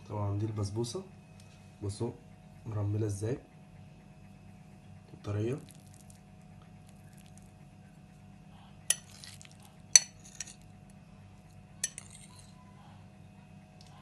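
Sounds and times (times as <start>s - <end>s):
fork clinking on ceramic plate: 8.9s - 10.6s, 11.8s - 12.6s.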